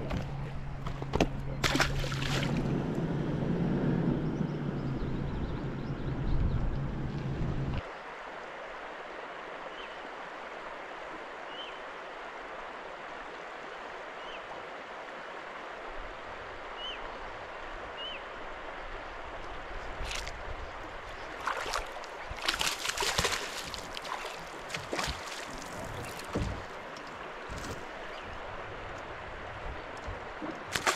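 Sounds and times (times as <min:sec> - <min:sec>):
water lapping against boat: 0:00.0 - 0:02.8, 0:19.8 - 0:30.9.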